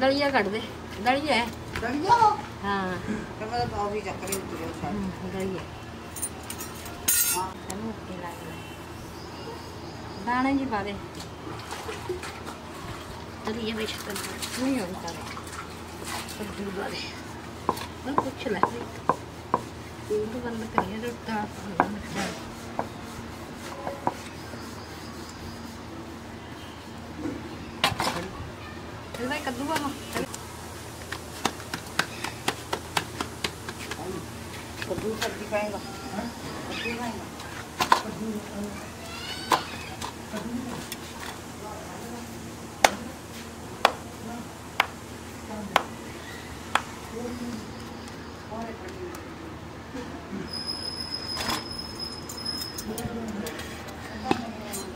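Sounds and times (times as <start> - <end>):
hands slapping dough: 31.0 - 34.2.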